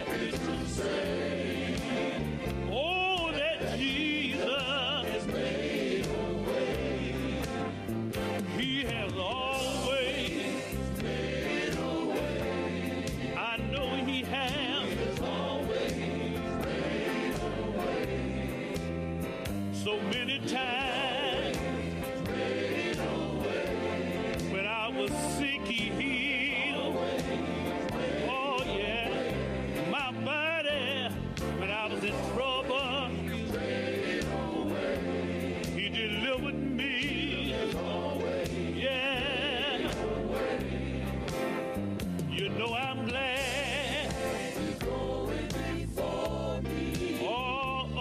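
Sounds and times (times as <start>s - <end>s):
bass line: 0.0s - 48.0s
gospel choir singing: 0.0s - 48.0s.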